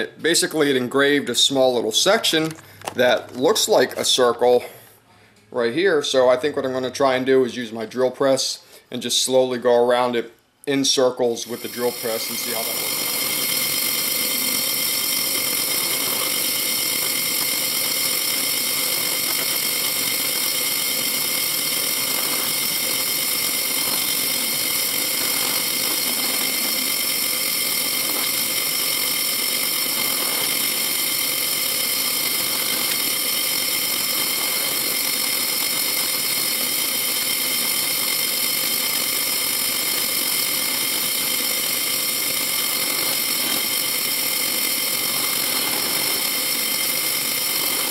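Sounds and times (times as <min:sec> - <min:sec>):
bit drilling through sheet metal: 0:11.2 - 0:47.9
drill press whining: 0:11.4 - 0:47.9.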